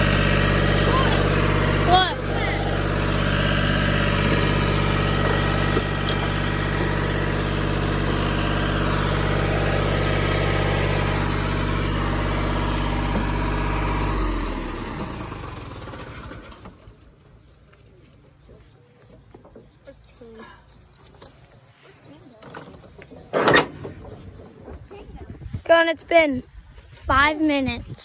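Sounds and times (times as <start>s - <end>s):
construction machine engine idling: 0.0s - 17.4s.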